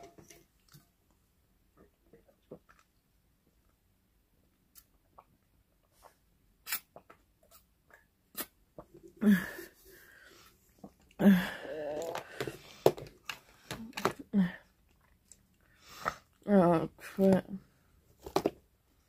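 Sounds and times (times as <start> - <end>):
mouth clicks and smacks: 4.7 - 9.0.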